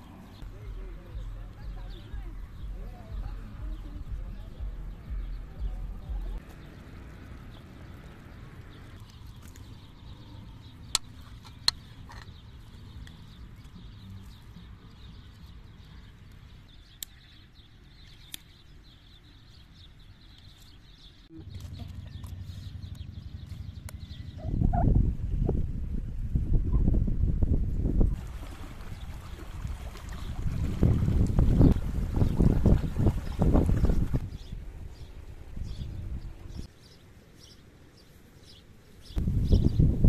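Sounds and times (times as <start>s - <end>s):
wind buffeting microphone: 21.4s - 36.7s, 39.0s - 40.0s.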